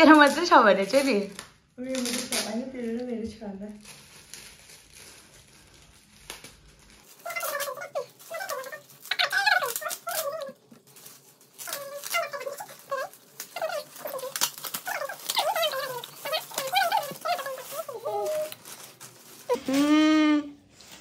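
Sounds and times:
foil wrap crinkling: 0.0s - 21.0s
high squeaky sounds: 7.2s - 10.6s, 11.6s - 18.6s.

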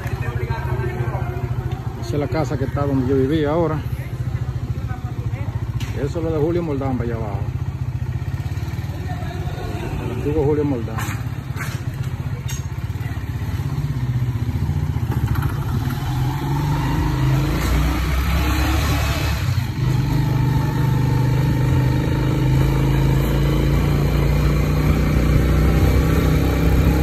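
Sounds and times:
vehicle engine running: 0.0s - 27.0s.

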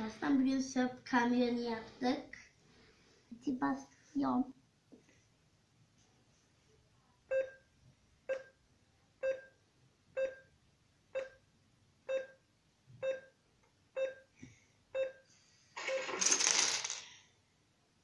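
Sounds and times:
plastic pieces clattering: 15.8s - 17.2s.

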